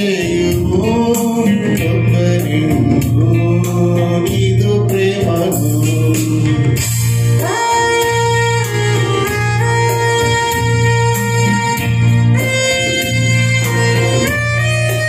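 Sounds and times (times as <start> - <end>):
man singing: 0.0 - 8.3
electronic keyboard melody: 0.0 - 15.0
tabla rhythm: 0.0 - 15.0.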